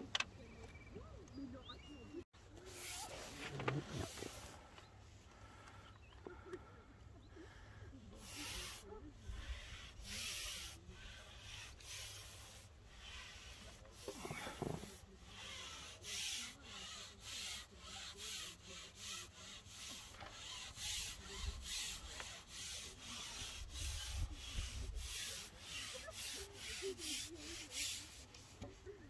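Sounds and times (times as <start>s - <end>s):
rhythmic rubbing or scraping: 8.2s - 28.5s.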